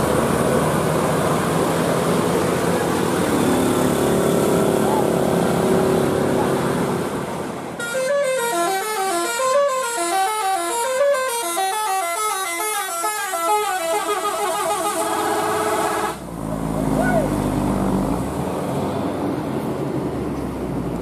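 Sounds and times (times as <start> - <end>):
vehicle engine and road noise: 0.0 - 21.0
bus horn playing a melody: 7.8 - 16.2.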